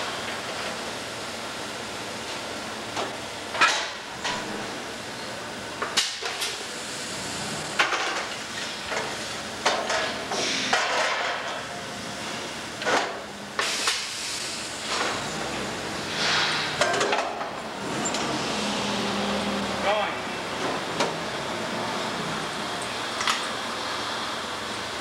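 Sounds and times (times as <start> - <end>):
steady shop hum: 0.0 - 25.0
short hisses: 16.1 - 16.7.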